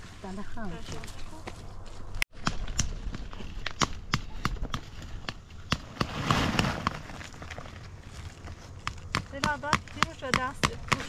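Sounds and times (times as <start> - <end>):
rustling noise: 5.8 - 8.9.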